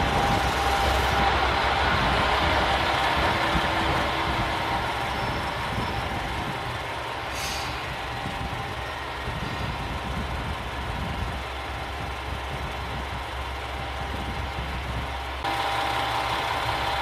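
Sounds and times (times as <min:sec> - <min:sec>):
diesel railcar engine: 0:00.0 - 0:17.0
short hiss: 0:07.3 - 0:07.8.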